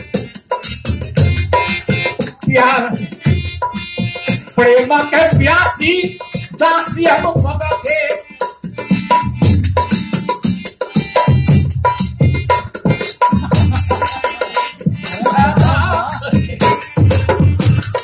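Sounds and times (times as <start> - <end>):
hand drum rhythm: 0.0 - 18.0
harmonium: 0.0 - 18.0
person singing: 14.1 - 18.0.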